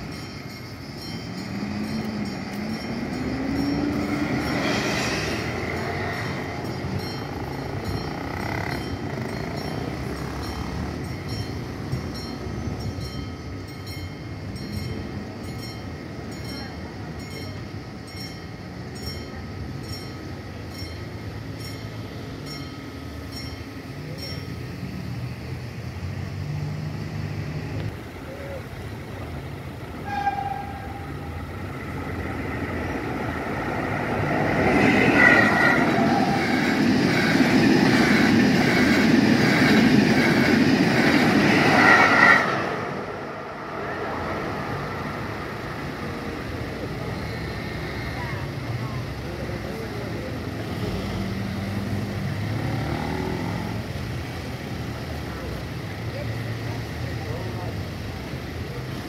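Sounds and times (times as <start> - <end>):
vehicle engine passing: 50.8 - 54.0.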